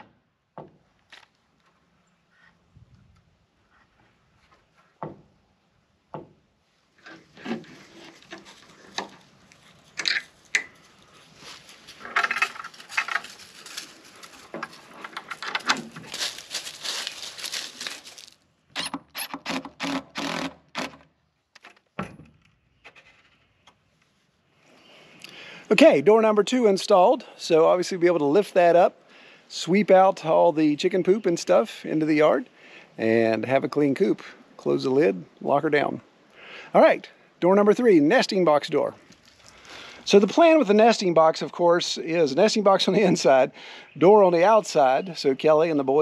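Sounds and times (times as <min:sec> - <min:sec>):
hardware clicks and scrapes: 0:07.0 - 0:10.8.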